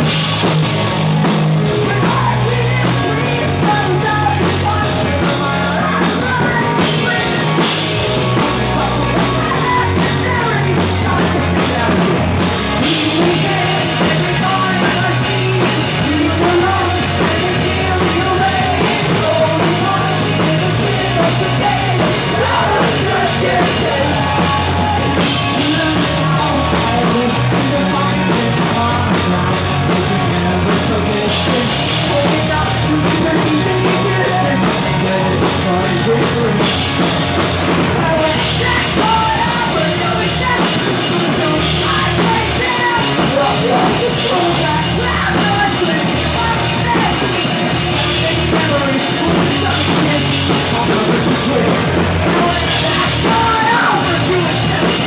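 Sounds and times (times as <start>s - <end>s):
distorted electric guitars: 0.0s - 55.0s
drum kit: 0.0s - 55.0s
electric bass: 0.0s - 55.0s
singer shouting and singing: 0.0s - 55.0s.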